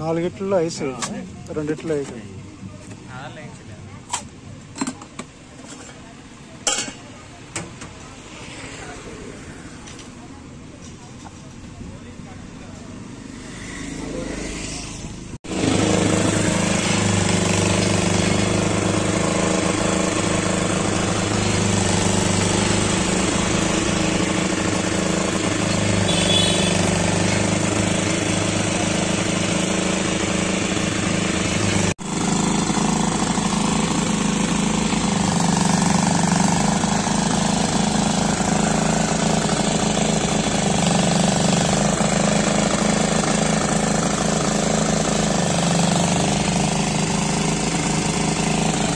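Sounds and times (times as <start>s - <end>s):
small engine running: 8.4s - 9.8s, 13.1s - 48.9s.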